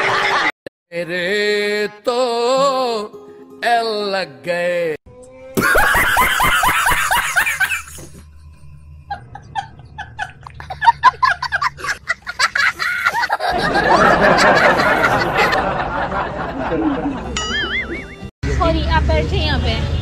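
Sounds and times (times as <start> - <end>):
person laughing: 5.6 - 8.2, 9.1 - 18.3
fuller din: 14.1 - 18.3.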